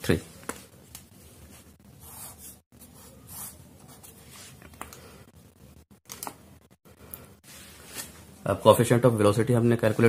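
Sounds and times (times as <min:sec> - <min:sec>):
pen scratching on paper: 0:02.0 - 0:04.4.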